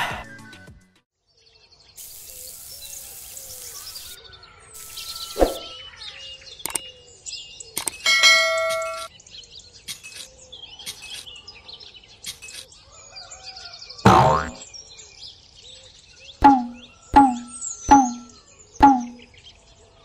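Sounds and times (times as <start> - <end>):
small birds chirping: 1.3 - 20.0
sharp clicks: 6.6 - 6.8, 7.8 - 8.0
bell-like ding: 8.1 - 9.1, 16.4 - 19.2.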